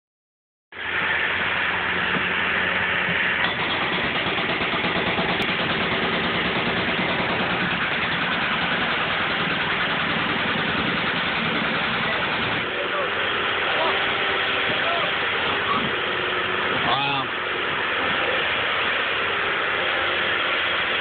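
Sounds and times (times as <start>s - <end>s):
excavator engine running: 0.7s - 21.0s
hydraulic breaker hammering concrete: 2.0s - 21.0s.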